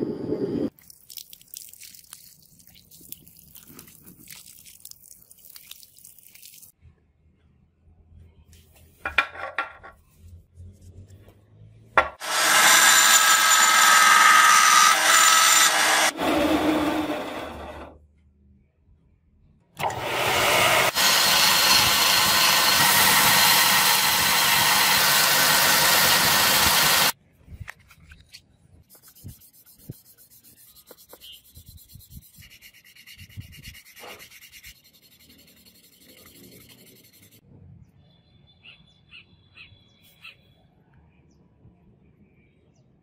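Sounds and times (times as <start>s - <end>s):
scroll saw cutting: 12.2s - 18.0s, 19.8s - 27.2s
hand sanding on sandpaper: 28.9s - 37.4s.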